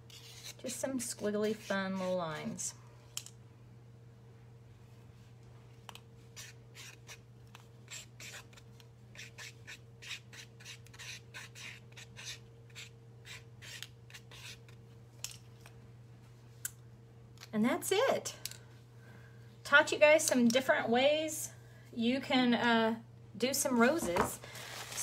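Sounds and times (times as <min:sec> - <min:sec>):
steady low hum: 0:00.0 - 0:25.0
pen scratching on paper: 0:07.9 - 0:08.5.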